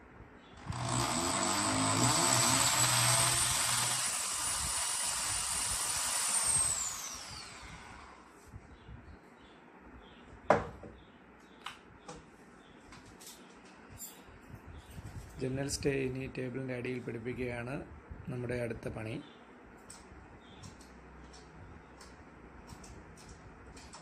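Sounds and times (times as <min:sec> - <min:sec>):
electric drill whining into wood: 0:00.6 - 0:08.3.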